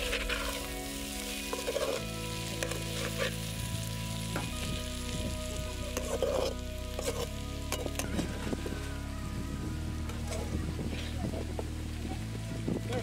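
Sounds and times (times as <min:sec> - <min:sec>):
spatula scraping and clinking pan: 0:00.0 - 0:03.5, 0:06.0 - 0:08.3
banana sizzling in oil: 0:00.0 - 0:13.0.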